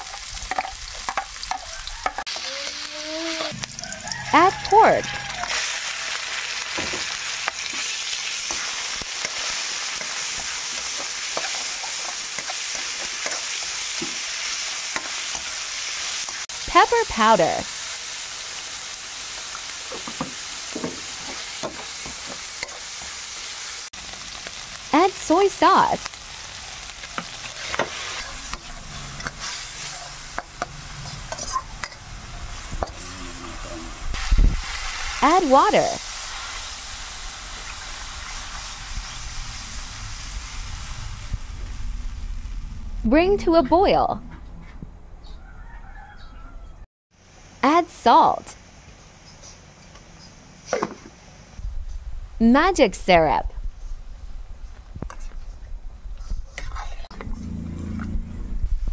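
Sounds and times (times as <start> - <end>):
meat sizzling in hot oil: 0.0 - 43.0.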